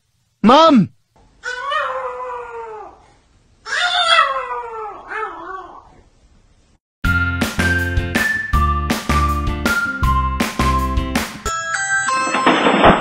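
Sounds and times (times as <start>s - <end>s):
cat yowling: 1.4s - 3.0s, 3.6s - 5.9s.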